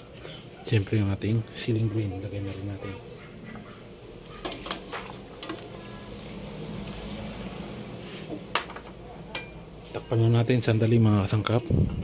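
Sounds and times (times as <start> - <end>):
utensils clinking on pot: 4.4 - 5.9, 8.6 - 9.6.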